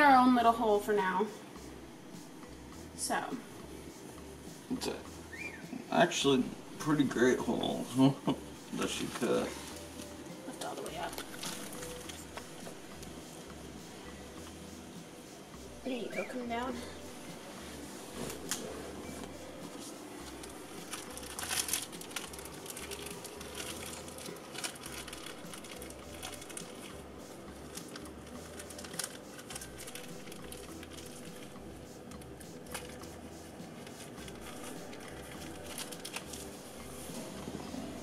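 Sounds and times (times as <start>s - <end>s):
plastic pouch crinkling: 11.0s - 12.3s, 20.4s - 27.0s, 27.7s - 31.5s, 33.8s - 36.5s.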